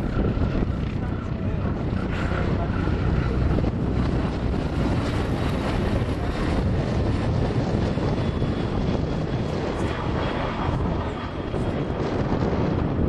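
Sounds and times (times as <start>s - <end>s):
aircraft engines and rotors running: 0.0s - 13.0s
wind rumbling on microphone: 0.0s - 13.0s.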